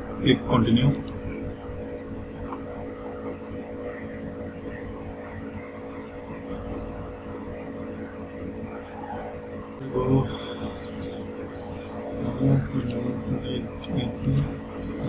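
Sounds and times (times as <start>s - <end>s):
background hum and hiss: 0.0s - 15.0s
steady low tones: 0.0s - 15.0s.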